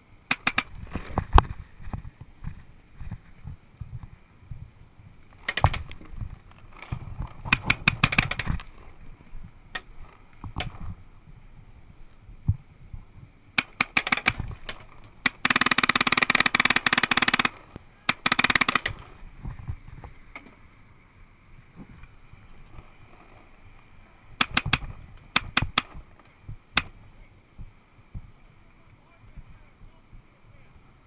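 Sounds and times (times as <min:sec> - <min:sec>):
paintball markers firing: 0:00.3 - 0:01.2, 0:05.4 - 0:06.1, 0:06.8 - 0:08.7, 0:13.6 - 0:19.1, 0:24.4 - 0:26.0, 0:26.8 - 0:27.0.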